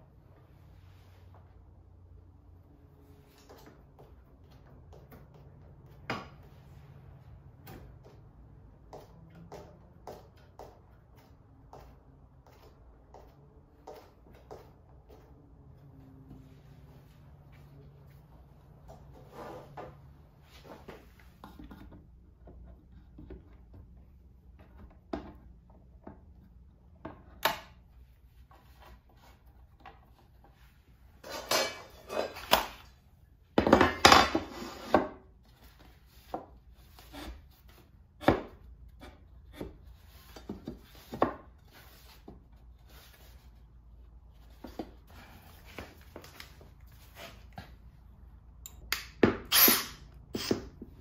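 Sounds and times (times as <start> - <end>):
clattering and scraping: 31.2 - 32.8.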